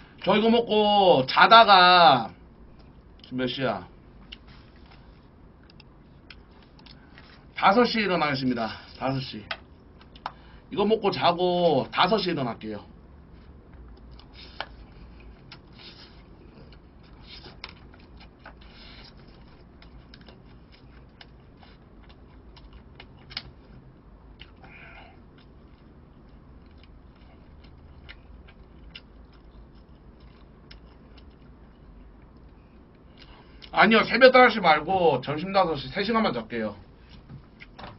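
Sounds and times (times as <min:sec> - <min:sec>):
chewing: 0:13.4 - 0:33.7.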